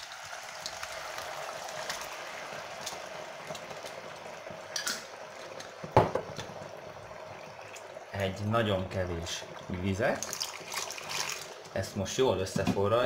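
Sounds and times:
glaze bubbling in a frying pan: 0.0 - 13.0.

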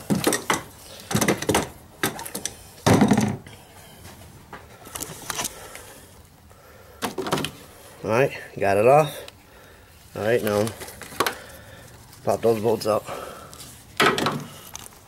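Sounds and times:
tools and engine parts clattering: 0.0 - 3.6, 14.0 - 15.0.

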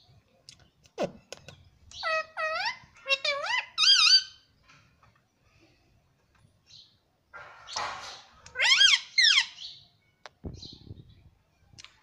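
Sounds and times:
parakeet raspy chatter: 1.9 - 4.4
parakeet high sharp calls: 8.5 - 9.8.

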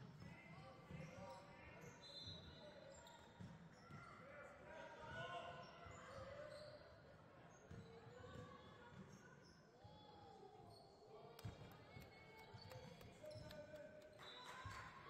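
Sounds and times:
sneaker squeaks: 5.8 - 9.7, 10.6 - 15.0.

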